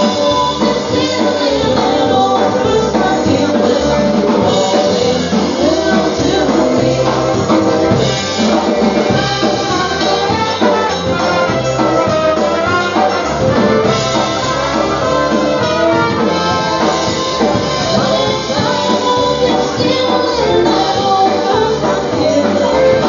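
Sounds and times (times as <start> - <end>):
accordion: 0.0 - 23.0
brass horns: 0.0 - 23.0
polka band playing: 0.0 - 23.0
steady bass beat: 9.0 - 20.0.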